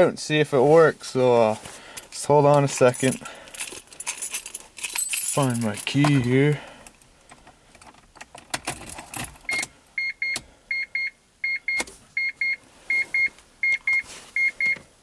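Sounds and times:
car keys jangling and clicking: 2.6s - 9.7s.

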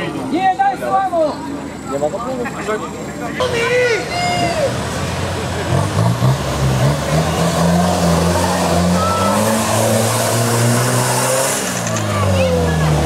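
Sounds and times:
car engine revving hard: 4.8s - 13.0s.

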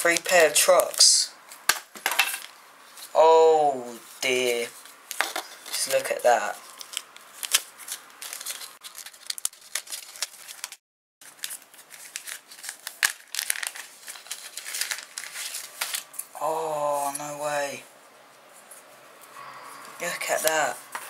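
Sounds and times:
packaging crinkling and rustling: 4.8s - 16.4s.

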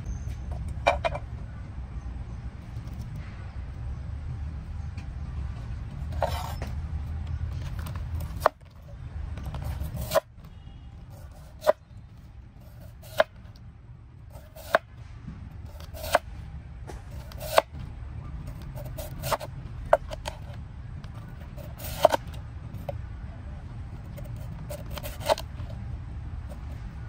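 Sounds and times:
low steady rumble: 0.0s - 27.0s
blade chopping: 9.4s - 11.8s, 12.6s - 13.4s, 14.3s - 15.0s, 15.6s - 17.8s, 18.4s - 23.0s, 24.1s - 25.7s.

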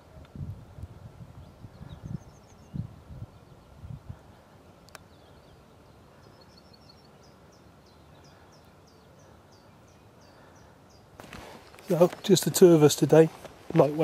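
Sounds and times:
small bird chirping: 1.4s - 3.9s.

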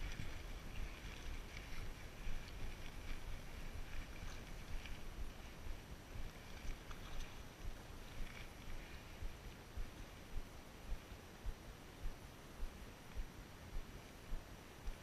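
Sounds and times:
wind and body movement rumble: 0.0s - 15.0s.

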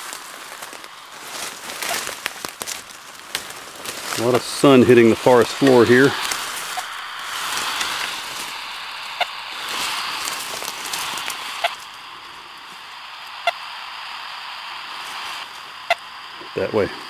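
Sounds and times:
rustle of leaves and brush: 0.0s - 17.0s
receiver beeping pips: 4.0s - 17.0s.

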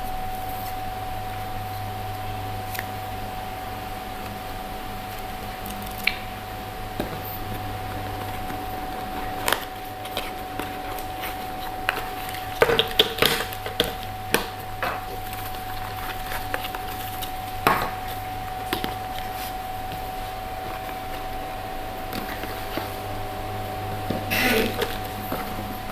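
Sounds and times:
faint steady hum: 0.0s - 25.9s
plastic bags rustling: 7.0s - 25.9s.

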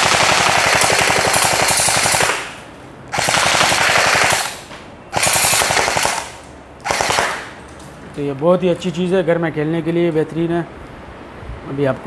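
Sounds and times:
airsoft rifle full-auto bursts: 0.0s - 7.6s.

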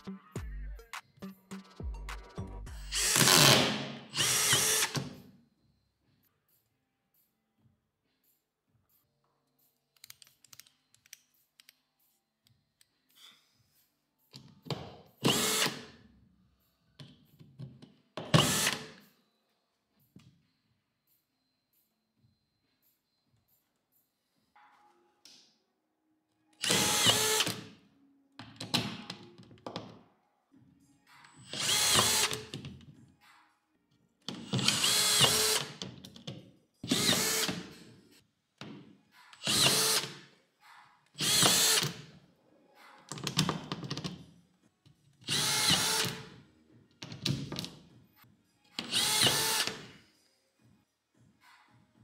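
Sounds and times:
drywall screwdriver motor: 2.9s - 5.0s, 26.6s - 27.6s, 31.5s - 32.5s, 34.4s - 35.8s, 36.9s - 37.6s, 39.4s - 40.1s, 41.2s - 42.0s, 45.3s - 46.2s, 48.8s - 49.9s.

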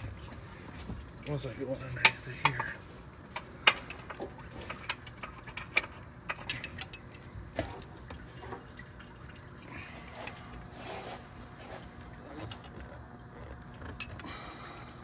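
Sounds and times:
tools clicking on metal parts: 4.9s - 7.0s.

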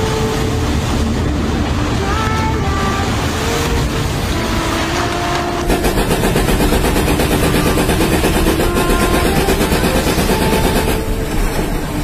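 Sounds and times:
heavy machinery drone: 0.0s - 12.0s
excavator engine pulsing: 5.4s - 12.0s.

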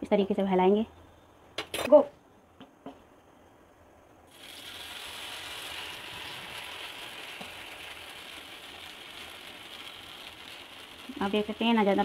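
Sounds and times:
batter sizzling in a pan: 4.3s - 12.0s.

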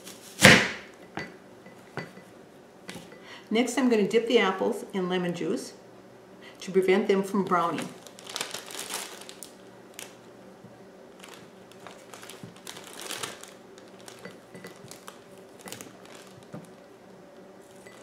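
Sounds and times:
plastic bag crinkling: 7.5s - 10.3s, 11.1s - 16.9s.

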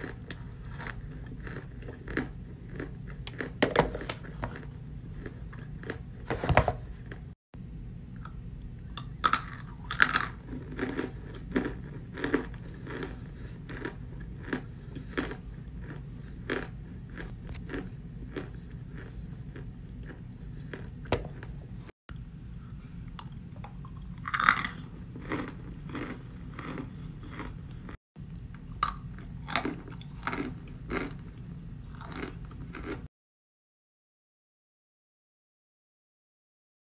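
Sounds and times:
person crunching cornstarch: 0.0s - 5.9s, 9.2s - 21.5s, 23.9s - 27.6s, 28.8s - 33.0s
low steady hum: 0.0s - 33.1s.

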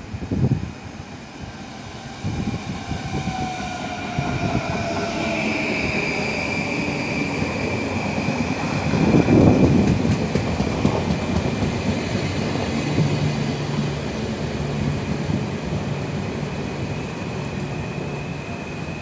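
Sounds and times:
electric train pulling in: 0.0s - 19.0s
high steady squeal: 1.4s - 9.1s.

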